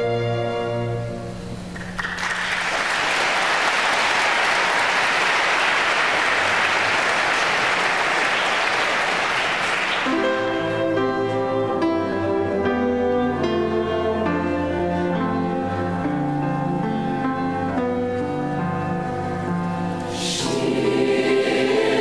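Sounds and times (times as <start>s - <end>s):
choral music: 0.0s - 1.8s, 10.0s - 22.0s
audience applauding: 1.8s - 10.4s
instrumental music: 10.0s - 22.0s.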